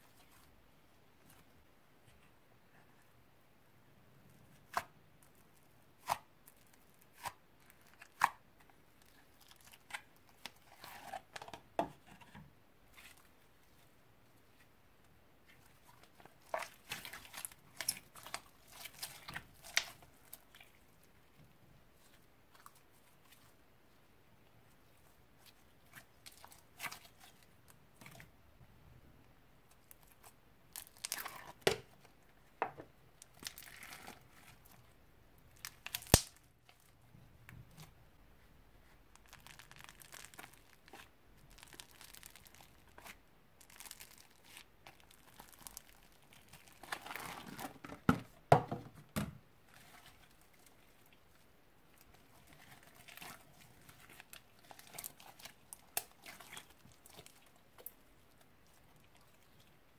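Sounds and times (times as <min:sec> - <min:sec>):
slime squelches: 0:15.4 - 0:24.0, 0:24.7 - 0:28.6, 0:29.6 - 0:32.1, 0:33.2 - 0:37.0, 0:38.8 - 0:47.8, 0:49.6 - 0:59.9
slime sticky crackles and pops: 0:35.6 - 0:36.5.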